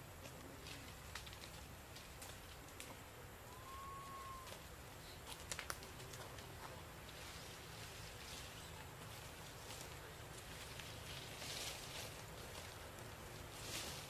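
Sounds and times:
faint outdoor ambience: 0.0 - 14.0
short whistle-like call: 3.5 - 4.6.

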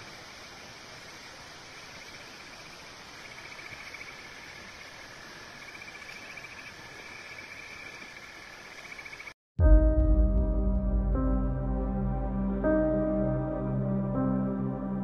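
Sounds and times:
insects trilling: 0.0 - 9.4.

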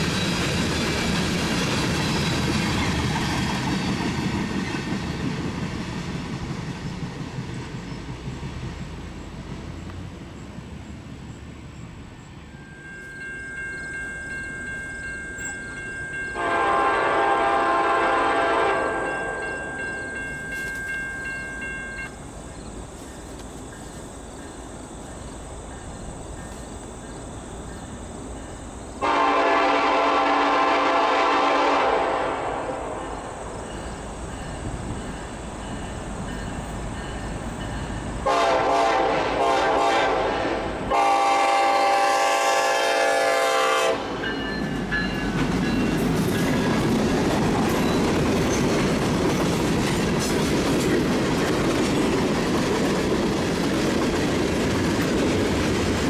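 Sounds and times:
train wheels clattering on rails: 0.0 - 10.9, 12.8 - 31.8, 32.6 - 39.8, 42.6 - 56.0
locomotive air horn blasts: 16.4 - 19.5, 29.0 - 33.0, 38.2 - 44.2.

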